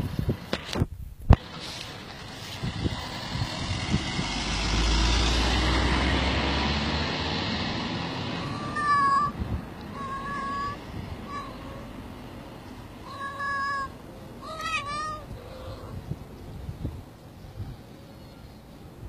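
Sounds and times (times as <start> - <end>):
vehicle passing: 1.4 - 17.2
cat meowing: 8.4 - 11.9, 13.0 - 16.0.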